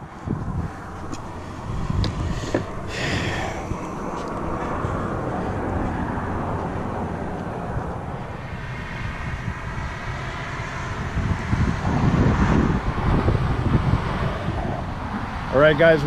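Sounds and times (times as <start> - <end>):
road traffic rumble: 0.0 - 16.0
wind on microphone: 0.0 - 16.0.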